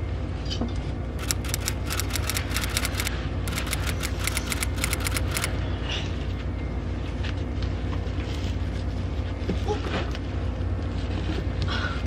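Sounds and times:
steady low hum: 0.0 - 12.0
typewriter keystroke clicks: 1.2 - 5.5.

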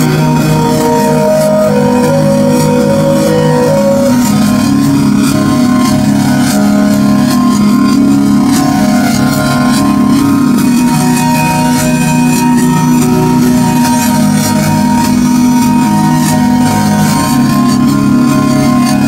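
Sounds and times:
instrumental music with held chords: 0.0 - 19.0.

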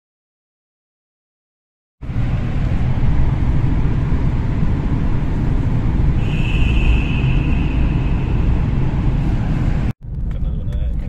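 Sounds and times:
tyre and engine rumble in car: 2.0 - 11.0
steady high tone: 6.2 - 9.7.

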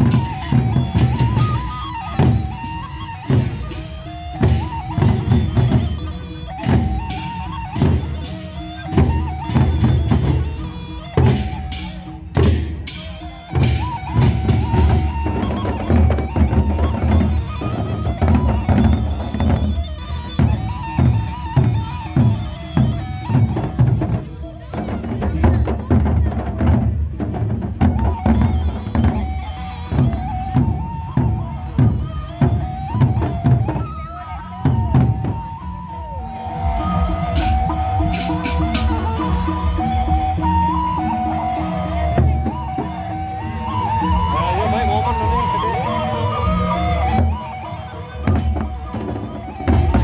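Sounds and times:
barrel drums beaten with sticks: 0.0 - 19.7, 36.8 - 40.2
high piping melody: 28.1 - 50.0.

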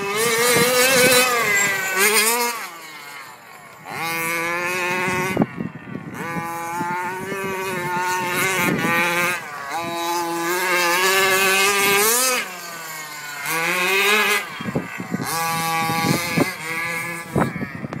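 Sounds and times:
rc buggy nitro engine revving: 0.0 - 18.0.

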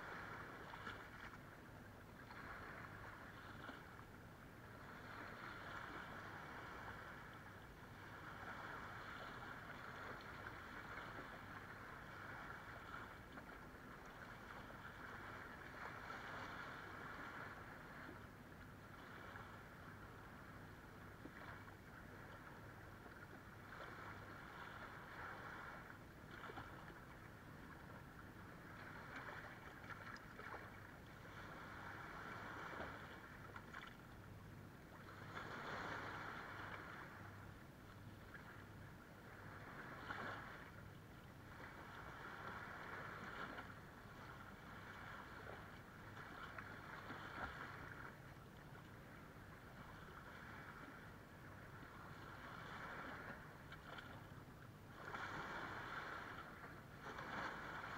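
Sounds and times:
small waves lapping on sand: 0.0 - 57.9.

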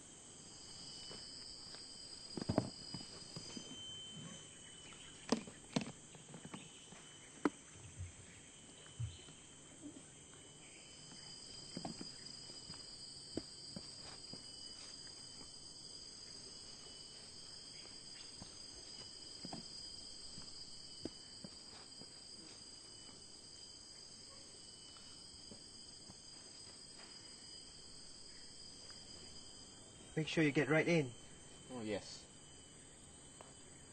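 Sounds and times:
insects chirring: 0.0 - 33.9.

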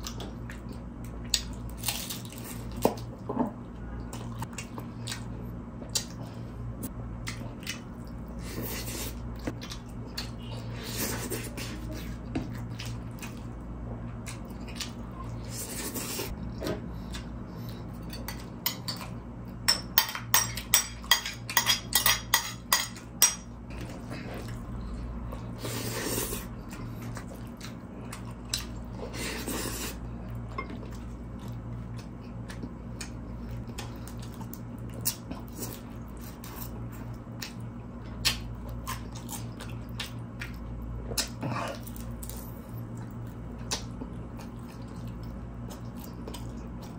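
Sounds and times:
steady low hum: 0.0 - 46.9
chewing: 7.2 - 19.2, 23.7 - 46.9.

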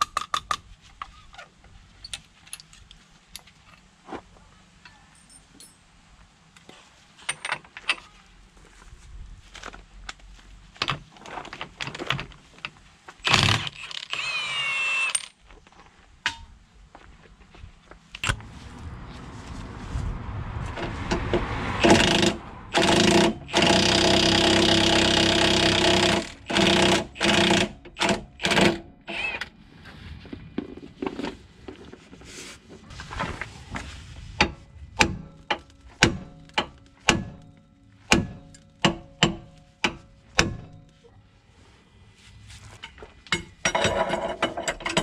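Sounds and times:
impact wrench hammering: 21.8 - 28.8, 35.0 - 40.8.

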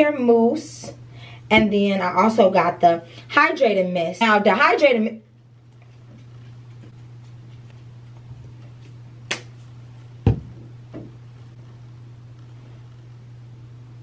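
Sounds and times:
low hum: 5.1 - 14.0
soft thump: 10.2 - 11.1.

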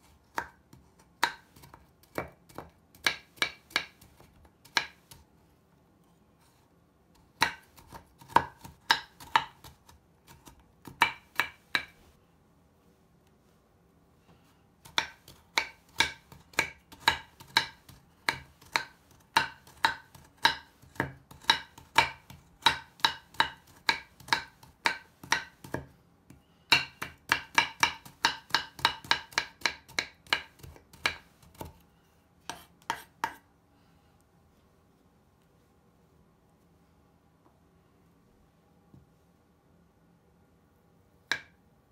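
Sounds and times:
knife chopping on wooden board: 0.3 - 5.2, 7.4 - 12.0, 14.8 - 25.9, 26.7 - 31.8, 32.5 - 33.4.

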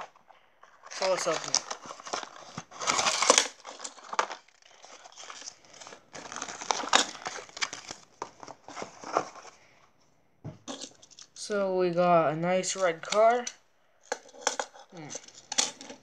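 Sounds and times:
cardboard box being torn open: 0.9 - 8.0.

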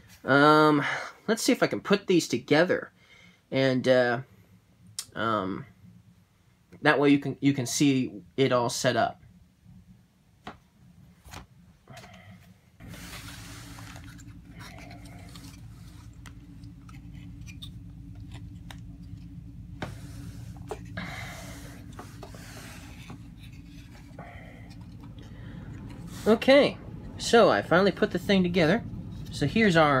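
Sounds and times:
steady low hum: 0.0 - 30.0
cardboard pieces rubbing: 12.8 - 25.2.

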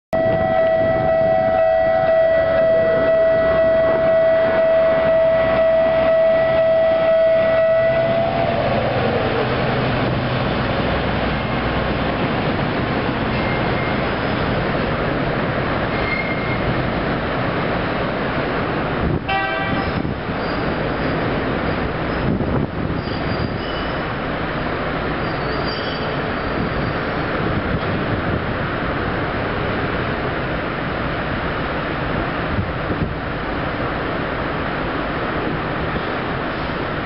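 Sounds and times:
diesel locomotive rumbling past: 0.2 - 37.0.

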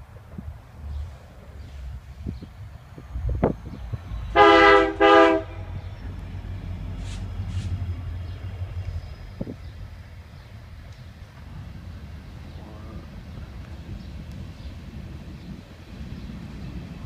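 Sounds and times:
train rumbling past: 0.0 - 17.0
locomotive air horn blasts: 4.3 - 5.8.

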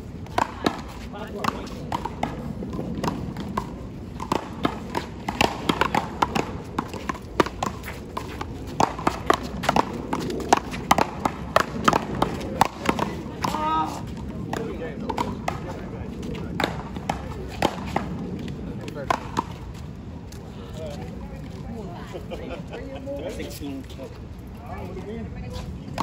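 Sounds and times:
ball hitting paddles and wall: 0.2 - 19.8.

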